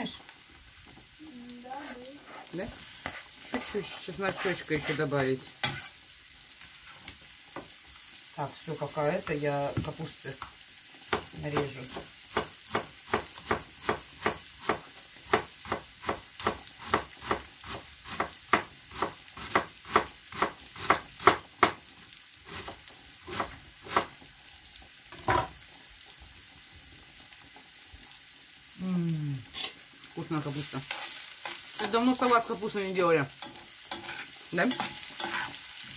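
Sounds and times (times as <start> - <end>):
knife chopping cabbage on board: 11.9 - 21.8, 23.3 - 24.1.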